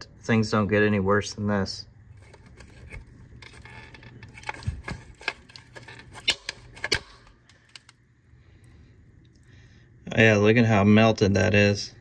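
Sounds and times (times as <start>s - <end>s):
plastic connector scraping: 2.1s - 8.0s.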